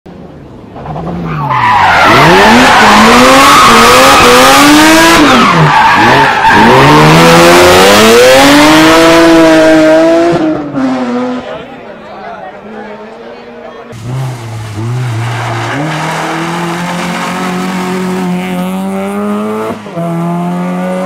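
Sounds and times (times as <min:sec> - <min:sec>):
rally car engine revving: 0:00.6 - 0:11.7, 0:13.9 - 0:21.0
tyres skidding on loose surface: 0:13.9 - 0:20.2.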